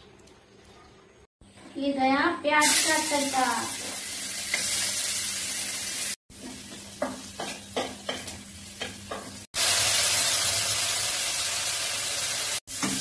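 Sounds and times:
onions sizzling in hot oil: 0:02.6 - 0:13.0.

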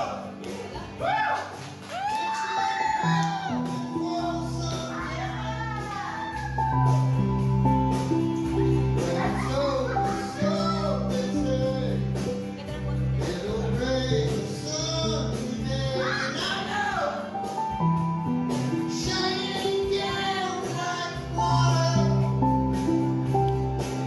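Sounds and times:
person singing: 0:02.6 - 0:07.3, 0:08.2 - 0:17.5, 0:18.8 - 0:22.8
sustained bass notes: 0:03.1 - 0:24.0.

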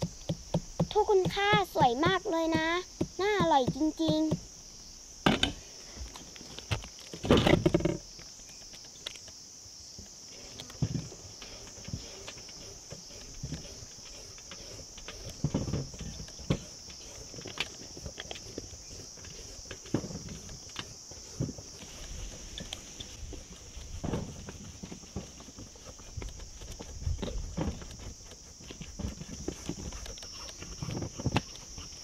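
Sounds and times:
high-pitched insect drone: 0:00.0 - 0:23.8.

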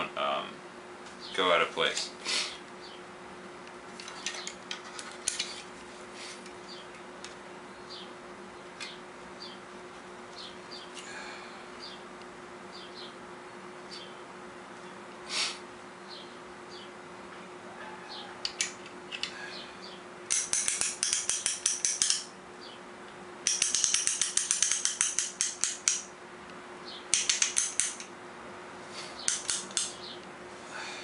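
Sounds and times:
ratchet pawl clicking: 0:23.5 - 0:26.1.

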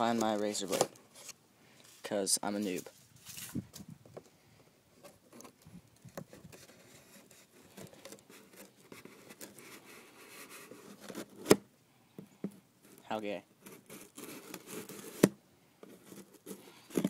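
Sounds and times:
knife scratching cardboard: 0:06.3 - 0:11.6, 0:12.8 - 0:17.0.

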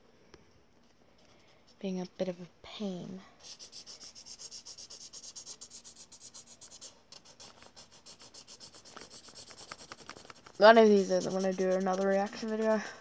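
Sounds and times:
marker scratching on paper: 0:03.4 - 0:12.8.

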